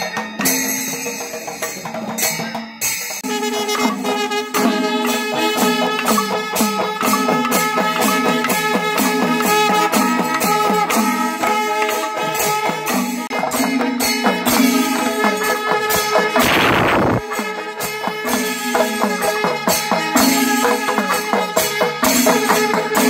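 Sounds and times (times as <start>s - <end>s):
drums in steady beat: 0.0s - 23.0s.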